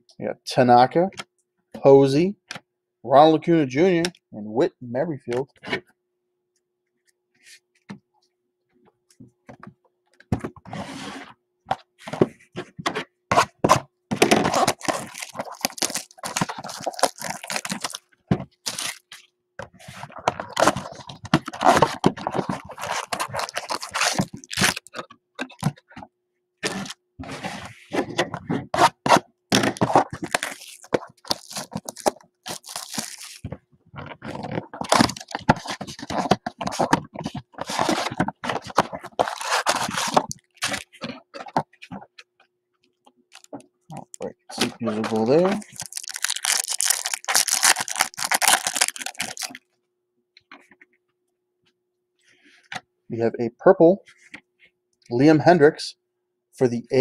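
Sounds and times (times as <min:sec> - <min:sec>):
cardboard boxes tearing: 0:13.3 - 0:18.0, 0:18.6 - 0:19.1, 0:20.4 - 0:25.0, 0:28.6 - 0:33.4, 0:34.4 - 0:41.0, 0:44.9 - 0:49.6
foil packs crinkling: 0:14.3 - 0:19.2, 0:20.0 - 0:25.0, 0:29.6 - 0:33.5, 0:34.2 - 0:41.5, 0:43.4 - 0:49.6.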